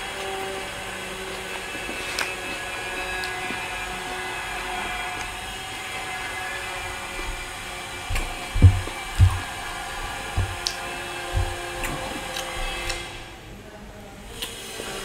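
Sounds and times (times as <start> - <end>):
heavy low thuds: 7.4 - 12.8.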